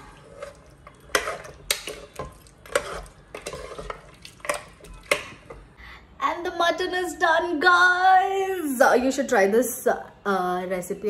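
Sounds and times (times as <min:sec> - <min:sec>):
metal ladle scraping a metal pot: 0:00.0 - 0:05.4.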